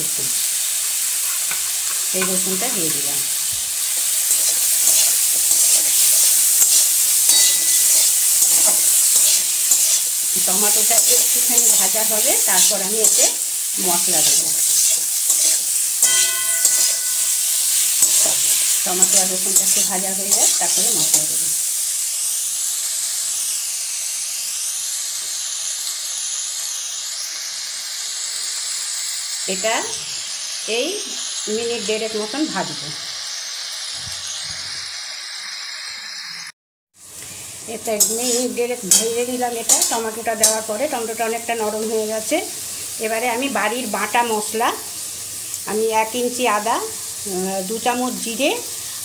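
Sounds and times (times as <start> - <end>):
vegetables sizzling in hot oil: 0.0 - 49.0
metal spatula scraping pan: 3.9 - 21.3, 38.0 - 40.7.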